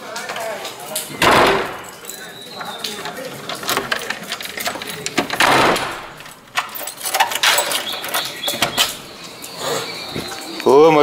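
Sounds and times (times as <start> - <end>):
keys rattling in lock: 0.1 - 10.0
door knob turning: 1.1 - 9.0.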